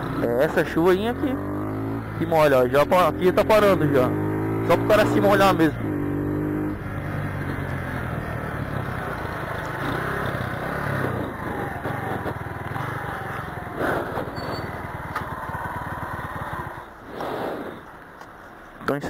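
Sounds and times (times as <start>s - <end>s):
road noise on wet street: 0.0s - 19.0s
motorcycle engine running slowly: 6.6s - 17.0s.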